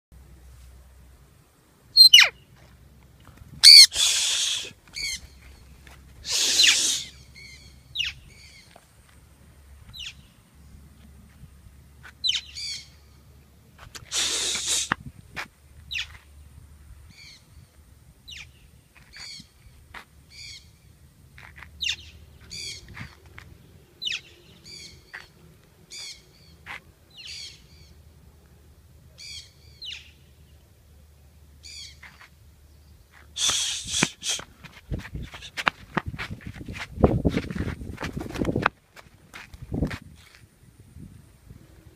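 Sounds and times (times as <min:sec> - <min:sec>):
parrots screeching: 0:02.0 - 0:02.3, 0:03.6 - 0:04.2, 0:06.4 - 0:07.2
short high chirping calls: 0:02.0 - 0:02.4, 0:03.6 - 0:05.6, 0:06.3 - 0:08.7.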